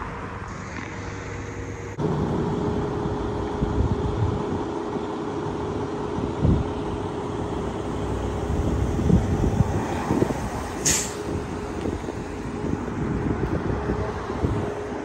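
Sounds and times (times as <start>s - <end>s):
vehicle engine and tyres rumbling: 0.0s - 15.0s
short hiss: 10.8s - 11.2s.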